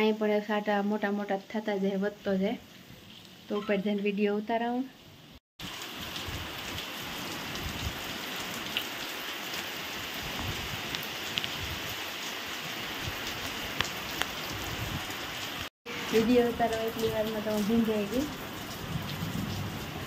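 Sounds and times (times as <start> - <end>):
heavy rain pouring: 5.6 - 20.0.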